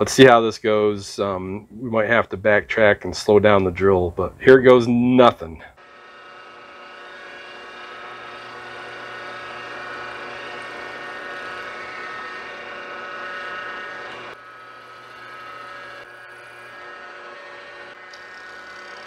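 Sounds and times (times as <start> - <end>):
drill press cutting metal: 5.8 - 19.0.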